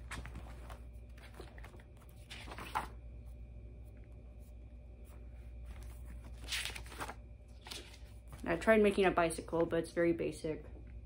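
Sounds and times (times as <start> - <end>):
paper rustling: 0.0 - 3.0, 5.0 - 8.5
low room hum: 0.0 - 11.0.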